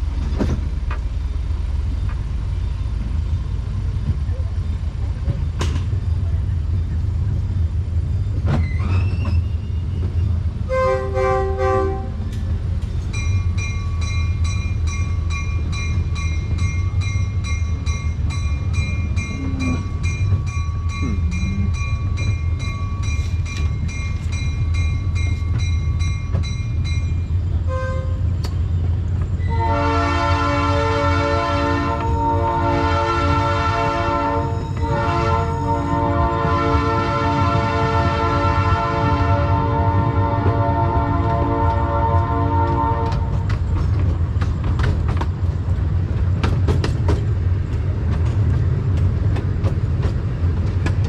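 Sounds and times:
train rumbling along track: 0.0 - 51.0
train whistle blasts: 10.7 - 12.2, 29.5 - 43.3
train bell ringing: 13.0 - 27.5, 34.4 - 36.0.

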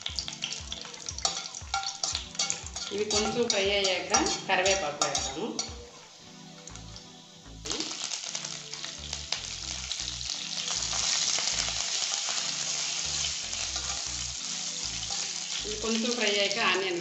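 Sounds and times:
leaves sizzling in hot oil: 0.0 - 17.0
metal spatula scraping pan: 1.2 - 5.9, 12.8 - 16.0.

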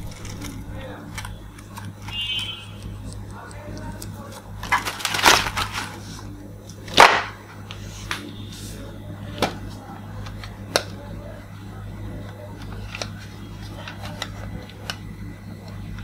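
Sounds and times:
plastic parts rustling and scraping: 0.0 - 6.3
steady low hum: 0.0 - 16.0.

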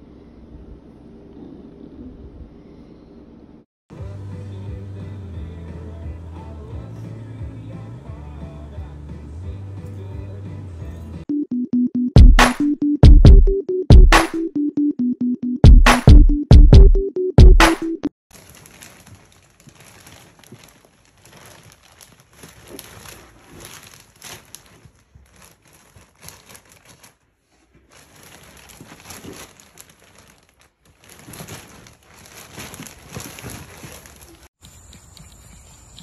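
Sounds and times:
plastic bag crinkling: 18.3 - 34.5.

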